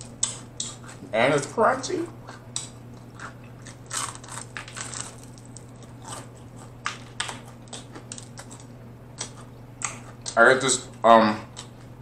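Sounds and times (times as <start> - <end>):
crunchy chewing of fried chicken: 0.0 - 12.0
low steady hum: 0.0 - 12.0.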